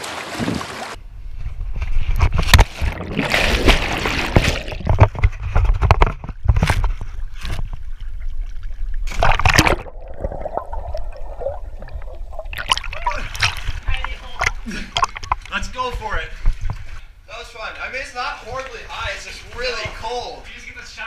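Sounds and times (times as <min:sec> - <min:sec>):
water splashing: 0:00.0 - 0:01.0, 0:02.4 - 0:15.8
water sloshing and gurgling: 0:00.0 - 0:17.2
muffled underwater bubbling: 0:07.8 - 0:15.5.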